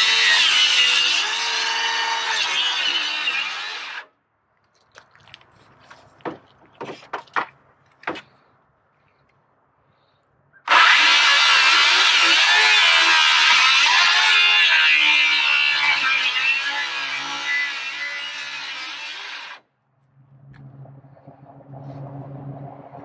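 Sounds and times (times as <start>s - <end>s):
circular saw cutting wood: 0.0s - 4.1s, 10.7s - 19.6s
wooden board knocks: 6.2s - 8.3s.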